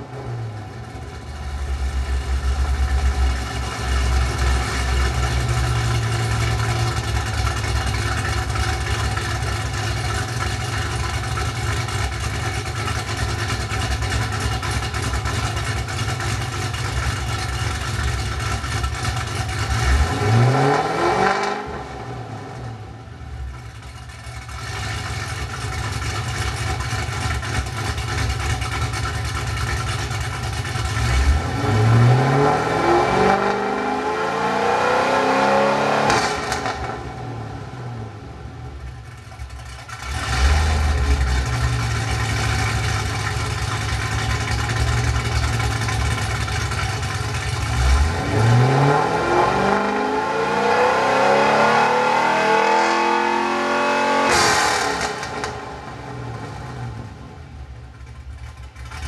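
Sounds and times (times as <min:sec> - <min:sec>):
car engine idling lumpily: 0:00.0 - 0:20.3, 0:22.0 - 0:31.9, 0:36.4 - 0:48.3, 0:54.9 - 0:59.0
engine revving: 0:00.0 - 0:23.0, 0:29.9 - 0:57.4.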